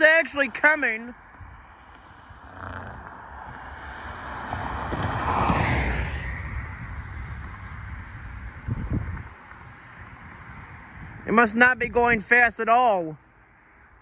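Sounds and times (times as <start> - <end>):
car driving past: 1.4 - 11.2.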